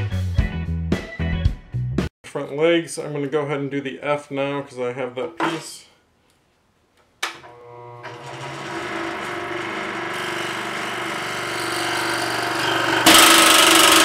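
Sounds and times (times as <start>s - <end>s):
scroll saw cutting wood: 7.4s - 14.0s.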